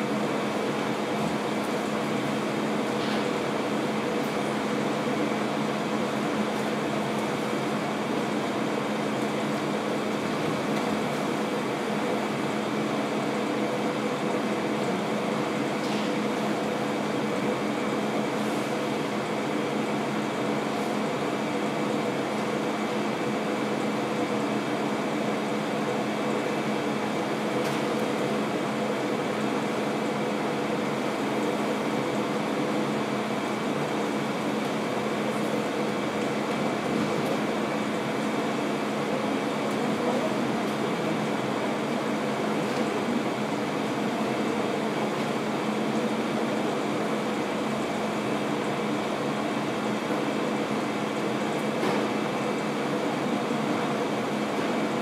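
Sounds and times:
air conditioning hum: 0.0s - 55.0s.

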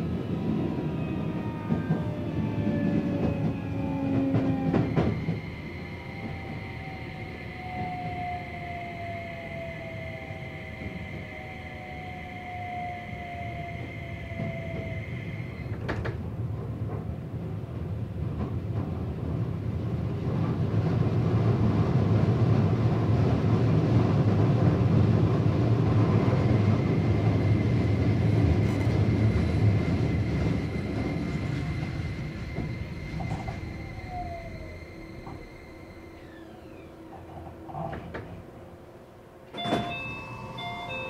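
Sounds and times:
train wheels rumbling on rails: 0.0s - 41.0s
faint high whine: 26.9s - 41.0s
falling motor whine: 30.7s - 38.7s.

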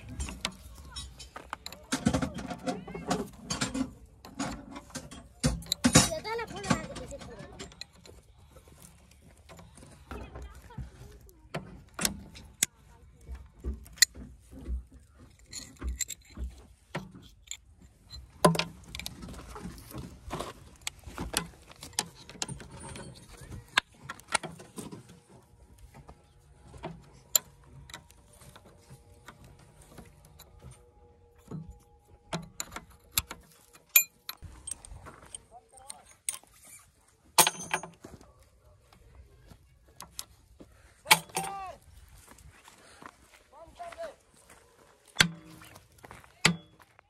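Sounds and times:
hand tools clinking on metal: 0.0s - 10.8s, 11.6s - 38.4s, 39.2s - 41.8s
sharp metallic clicks and knocks: 0.0s - 10.9s, 11.5s - 26.0s, 26.6s - 36.8s, 37.4s - 38.0s, 41.0s - 41.7s, 45.1s - 45.8s.

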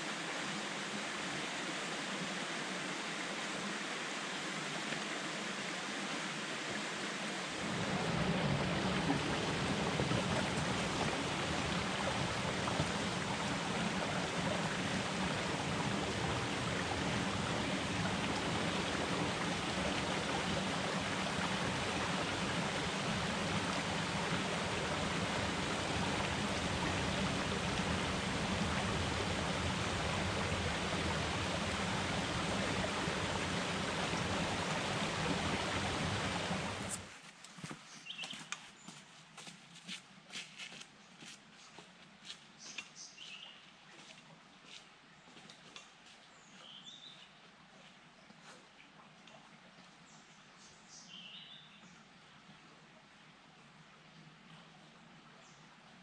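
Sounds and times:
creek water rushing over boulders: 0.0s - 37.2s.

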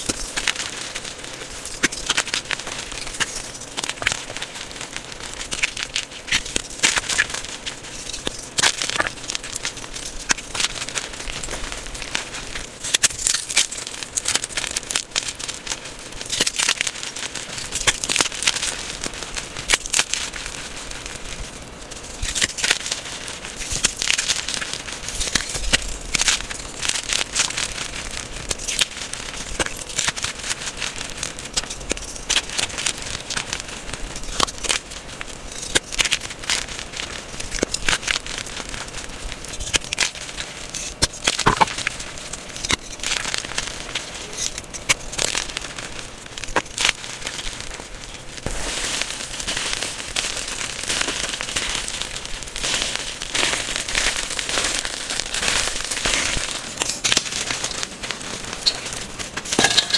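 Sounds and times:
chalk crunching and crackling: 0.0s - 59.9s.

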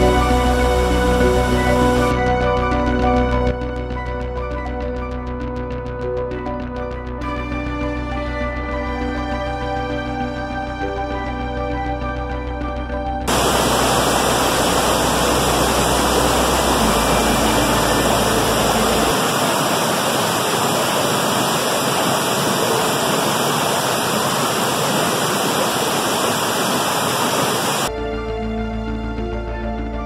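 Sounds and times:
background music: 0.0s - 19.4s, 27.9s - 30.0s
waterfall rushing: 13.3s - 27.9s.

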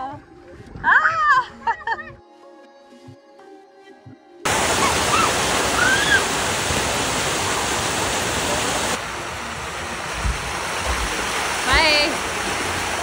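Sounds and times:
children calling: 4.5s - 9.0s
water running down slide: 4.5s - 13.0s
waterfall splashing into pool: 4.5s - 13.0s.

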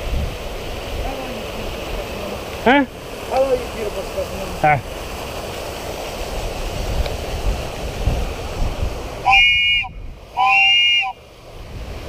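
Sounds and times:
wind on microphone: 0.0s - 12.0s
microphone handling rumble: 6.4s - 10.2s
short horn blasts: 9.2s - 11.2s.

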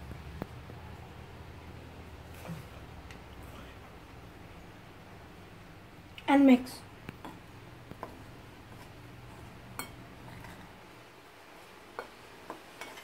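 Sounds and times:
fork stirring flour: 7.2s - 10.8s, 11.6s - 13.0s
metal clinking on bowl: 9.7s - 10.6s.

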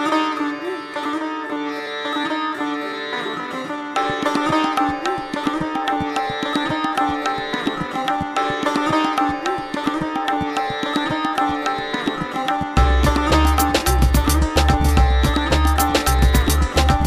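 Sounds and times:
plucked string instrument with drone: 3.5s - 17.0s
hand drum strokes: 4.2s - 17.0s
deep bass beat: 12.8s - 17.0s.

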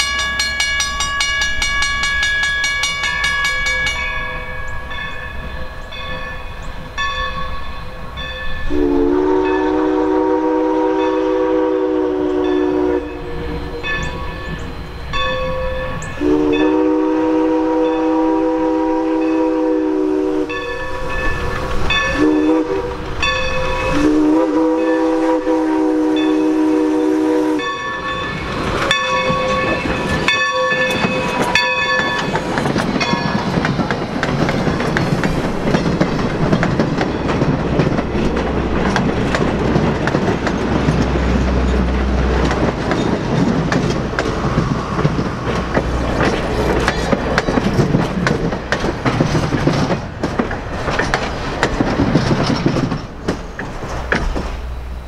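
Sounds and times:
train rolling noise: 0.0s - 55.0s
steam locomotive whistle: 8.6s - 28.3s
wheels clicking over rail joints: 27.6s - 54.8s.

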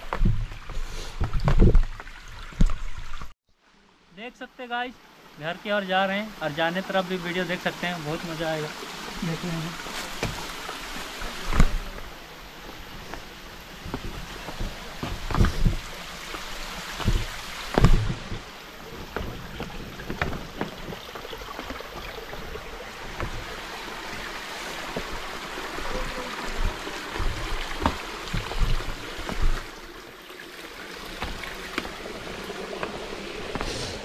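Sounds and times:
footsteps on trail: 9.8s - 30.0s, 31.1s - 32.0s, 32.6s - 34.0s.

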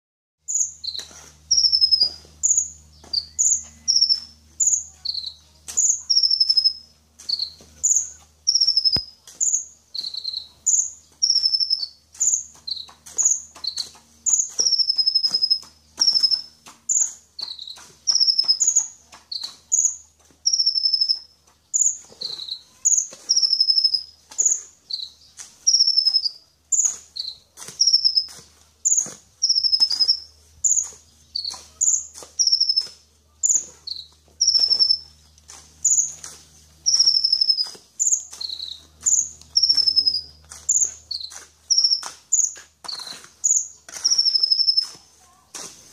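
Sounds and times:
bird chirping: 0.5s - 45.0s.

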